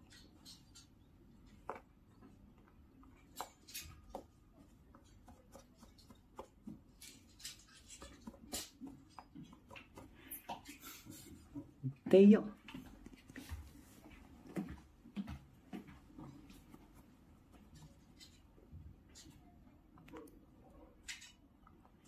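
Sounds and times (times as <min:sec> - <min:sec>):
cat scratching toy on tile: 0:00.0 - 0:11.7.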